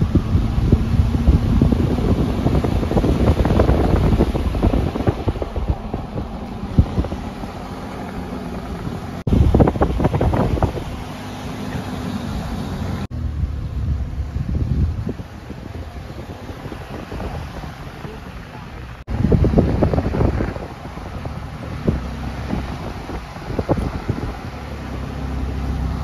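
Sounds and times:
car road noise rumble: 0.0 - 26.0
wind buffeting microphone: 0.0 - 26.0.

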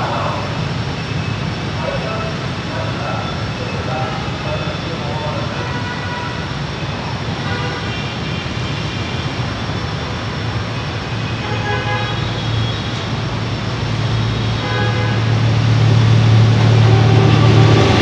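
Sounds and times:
motorbike traffic: 0.0 - 18.0
locomotive engine rumble: 12.9 - 18.0
horn toots: 14.1 - 18.0.

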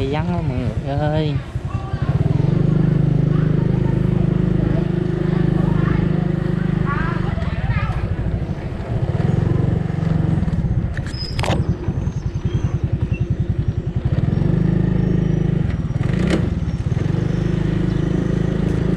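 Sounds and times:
motorbike engine running: 0.0 - 18.9
short high squeak: 11.0 - 13.3.

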